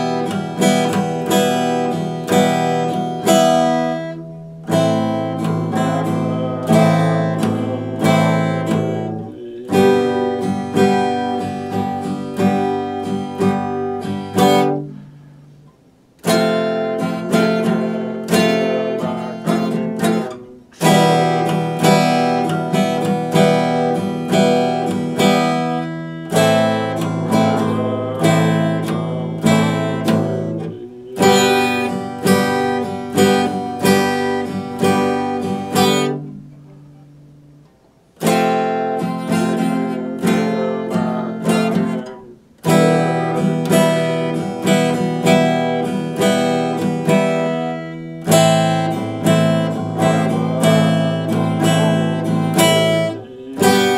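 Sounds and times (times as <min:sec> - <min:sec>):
acoustic guitar strumming: 0:00.0 - 0:53.9.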